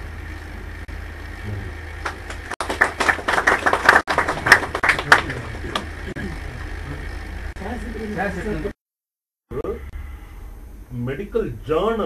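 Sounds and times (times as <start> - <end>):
audience clapping: 2.0 - 6.2.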